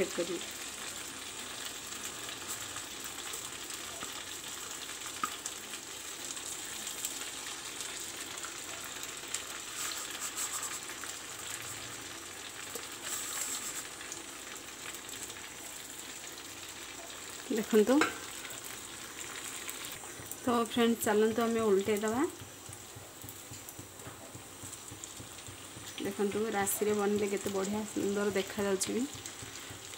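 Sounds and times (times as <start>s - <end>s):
hot oil sizzling: 0.0s - 29.9s
crackles and pops: 21.3s - 29.9s.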